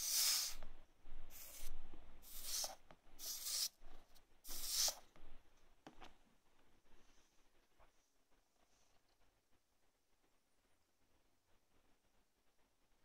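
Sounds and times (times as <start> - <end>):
soldering iron hissing on wet sponge: 0.0 - 0.7, 1.3 - 3.8, 4.4 - 5.1.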